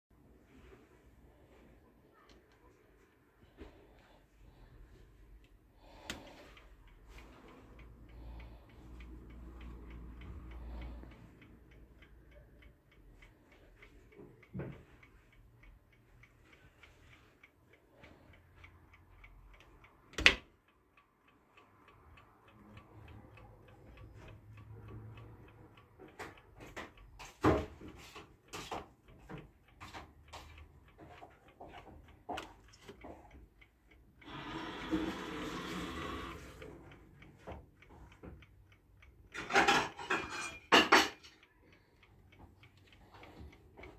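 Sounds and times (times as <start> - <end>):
chess clock ticking: 2.1 - 43.9
clicks and knocks of handling: 26.0 - 33.4.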